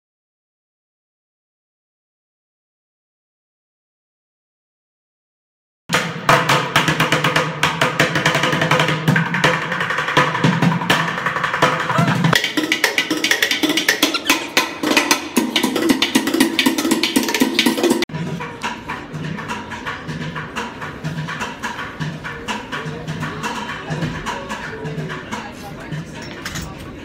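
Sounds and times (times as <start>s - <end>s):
music with wood-block percussion: 5.9s - 27.0s.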